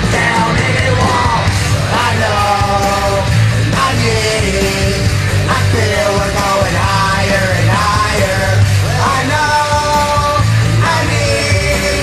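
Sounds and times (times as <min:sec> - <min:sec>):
man yell-singing: 0:00.0 - 0:12.0
punk rock backing track: 0:00.0 - 0:12.0.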